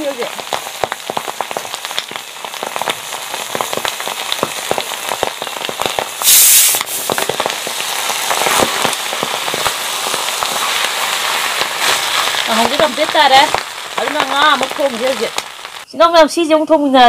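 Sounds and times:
food frying in oil: 0.0 - 15.9
loud burst of hiss: 5.1 - 15.8.

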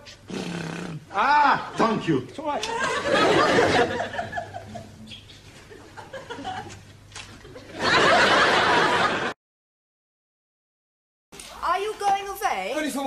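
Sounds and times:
studio audience laughing: 2.6 - 9.4.

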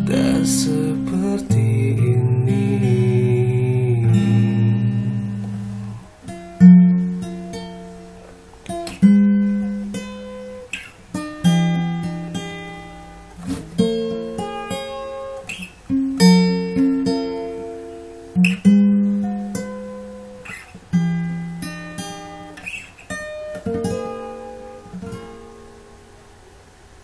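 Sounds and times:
acoustic guitar chords: 0.0 - 27.0.

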